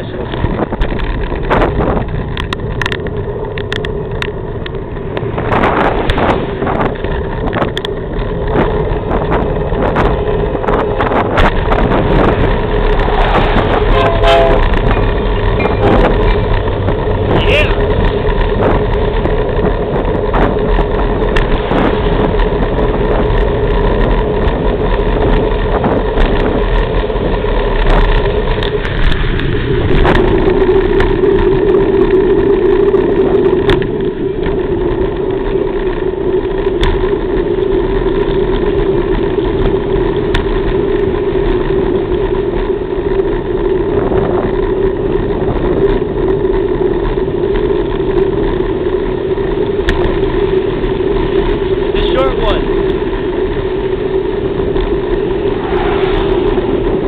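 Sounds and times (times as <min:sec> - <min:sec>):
car engine drone: 0:00.0 - 0:57.0
road noise: 0:00.0 - 0:57.0.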